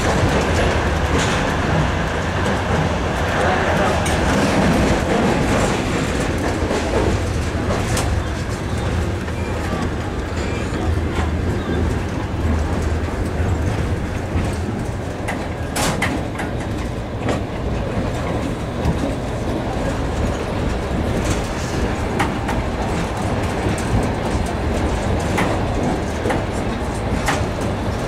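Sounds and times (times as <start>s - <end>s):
train rumble inside carriage: 0.0s - 28.0s
wheels clicking over rail joints: 0.0s - 28.0s.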